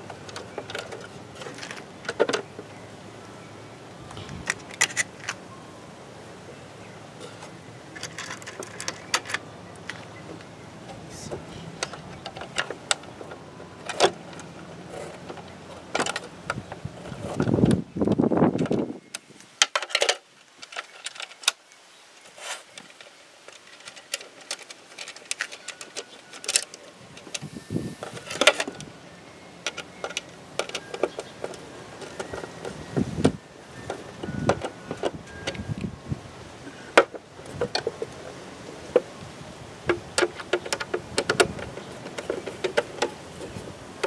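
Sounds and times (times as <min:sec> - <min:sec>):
plastic parts clicking and knocking: 0:00.0 - 0:02.7, 0:07.4 - 0:10.5, 0:11.3 - 0:21.6, 0:22.8 - 0:28.9, 0:29.6 - 0:35.8, 0:36.7 - 0:38.2, 0:39.8 - 0:43.6
scraping rustle: 0:00.0 - 0:02.7, 0:07.2 - 0:21.6, 0:22.2 - 0:29.0, 0:29.7 - 0:44.0.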